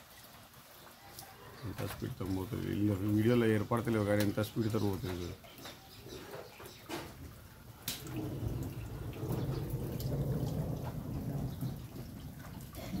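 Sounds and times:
floodwater rushing: 0.0 - 13.0.

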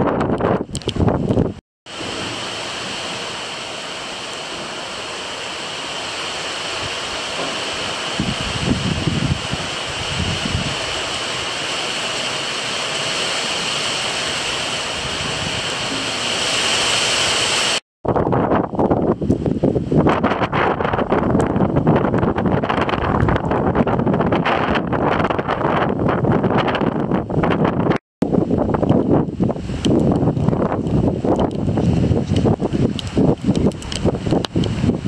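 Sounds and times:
rain pouring down: 1.3 - 17.8, 28.3 - 35.0.

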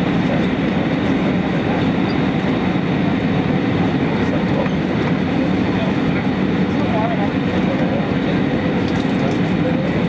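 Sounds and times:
airliner cabin engine rush: 0.0 - 10.0.

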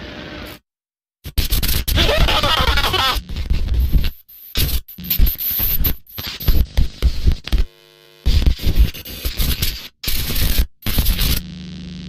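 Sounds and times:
distorted static bursts: 1.3 - 11.6
quiet buzz: 3.8 - 9.3.

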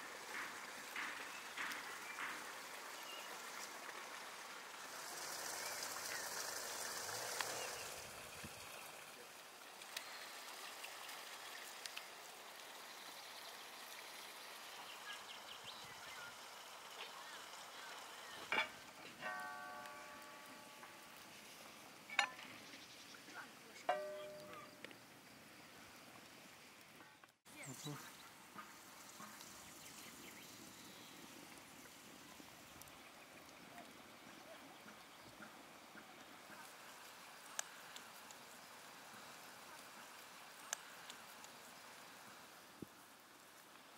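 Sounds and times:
flowing water rushing: 0.0 - 21.5
faint clicks: 11.8 - 12.1, 37.4 - 38.5, 40.2 - 41.6.

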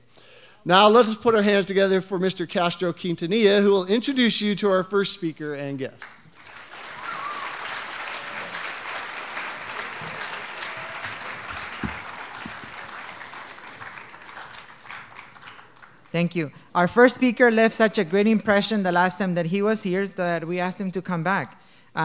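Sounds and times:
audience applauding: 6.3 - 16.2.

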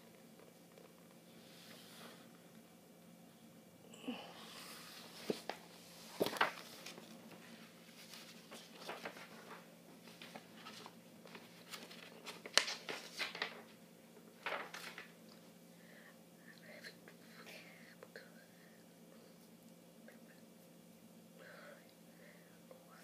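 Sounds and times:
faint steady hum: 0.0 - 23.0
book pages rustling: 5.0 - 13.8, 14.4 - 15.2.

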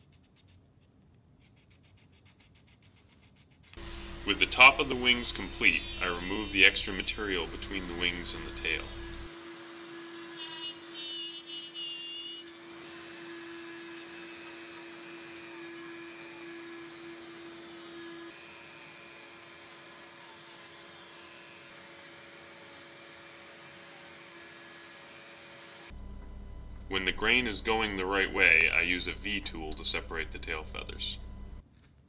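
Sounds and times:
rotary tool grinding wood: 3.7 - 26.0.

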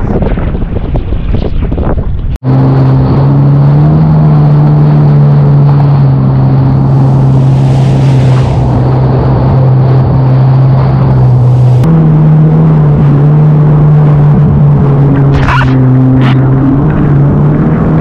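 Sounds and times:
wind buffeting microphone: 0.0 - 18.0
jet ski engine drone: 2.4 - 18.0
water rushing past: 2.8 - 11.9.

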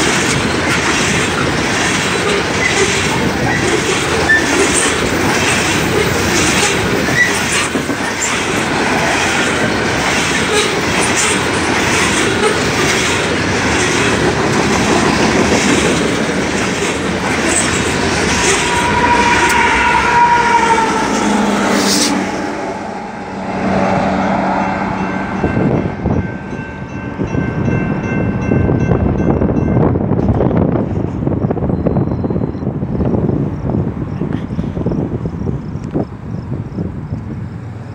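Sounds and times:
steel wheels clicking over rail joints: 0.0 - 19.6
train cars rolling past: 0.0 - 37.9
high wheel squeal: 2.6 - 12.7, 17.4 - 23.4
grade-crossing bell dinging: 16.7 - 30.6.

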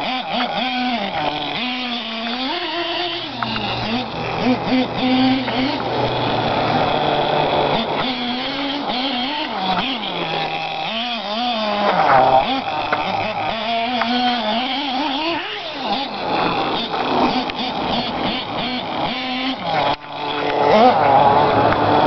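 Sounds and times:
small glow engine revving: 0.0 - 22.0.

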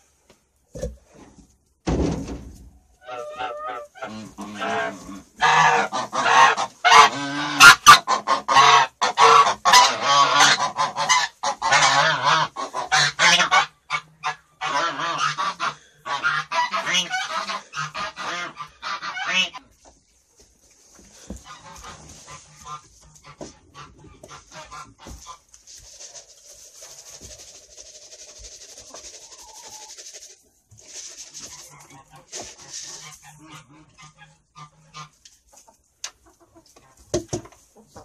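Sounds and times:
poultry flock calling: 3.0 - 19.6, 21.2 - 37.0.

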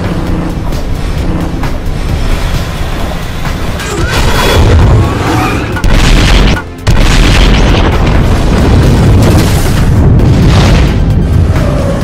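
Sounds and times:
dramatic music: 0.0 - 12.0
explosion: 5.8 - 11.4.

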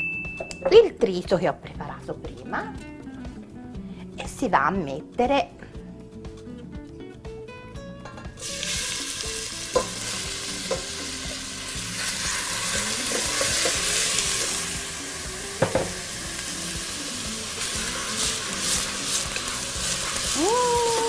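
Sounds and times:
vegetables sizzling in oil: 8.4 - 21.0
wooden spoon knocking pot: 15.6 - 15.9.

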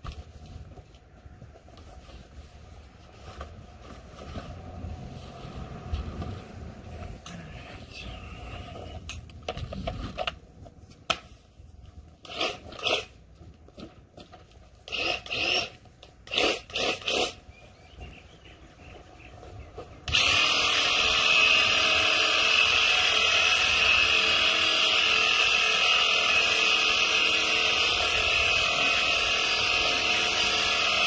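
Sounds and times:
airless sprayer motor buzzing: 20.1 - 31.0.

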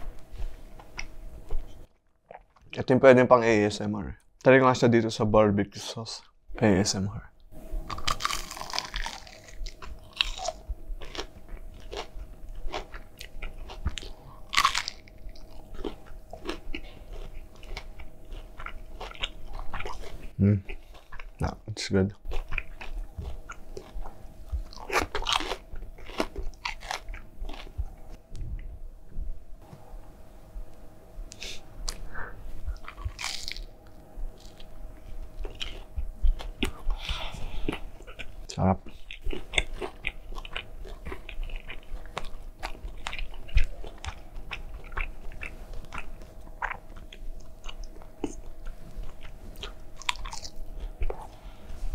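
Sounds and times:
crunching and chewing: 0.7 - 2.8, 7.9 - 21.5, 22.1 - 28.2, 32.7 - 51.7.

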